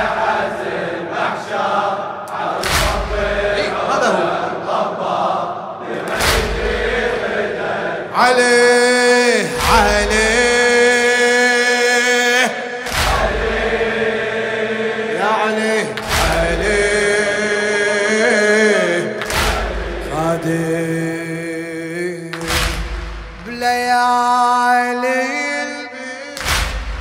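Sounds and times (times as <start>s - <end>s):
chest-beating thuds: 2.6s - 3.6s
man chanting over microphone: 3.1s - 4.5s, 8.1s - 13.5s, 15.2s - 27.0s.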